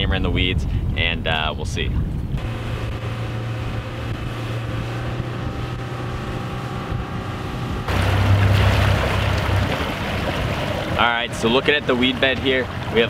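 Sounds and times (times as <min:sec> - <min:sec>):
wind noise on microphone: 0:00.0 - 0:13.0
outboard motor running: 0:02.4 - 0:13.0
rushing water: 0:03.0 - 0:13.0.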